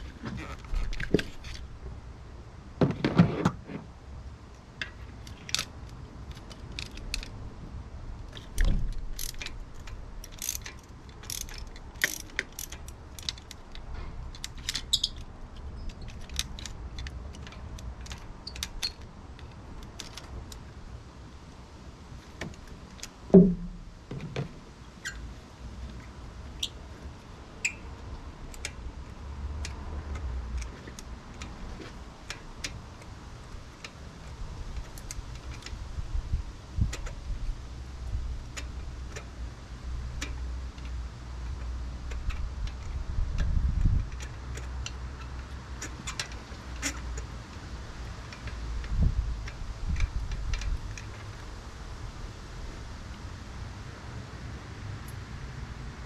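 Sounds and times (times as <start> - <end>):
dull knocks: 23.3 - 24.6.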